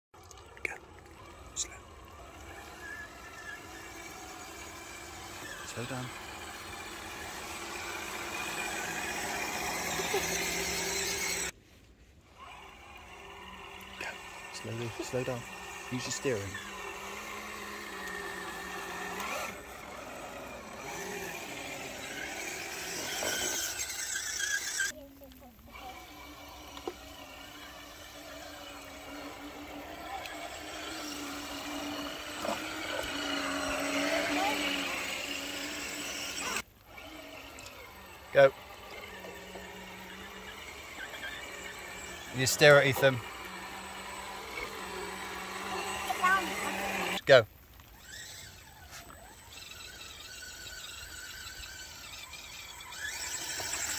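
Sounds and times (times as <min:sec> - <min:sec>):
small electric motors whining: 0:00.1 - 0:53.9
water swishing around tyres: 0:00.2 - 0:53.9.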